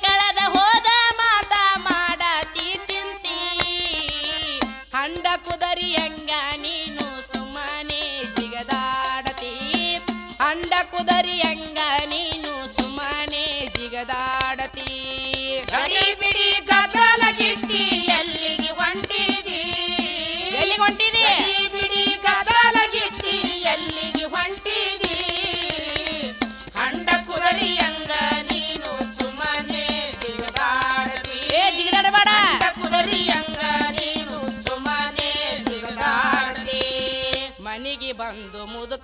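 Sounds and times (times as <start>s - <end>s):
drum beat: 15.7s - 37.3s.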